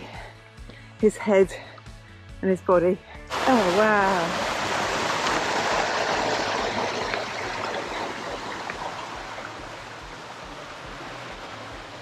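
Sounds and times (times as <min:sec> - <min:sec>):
water rushing over boulders: 0:03.3 - 0:12.0.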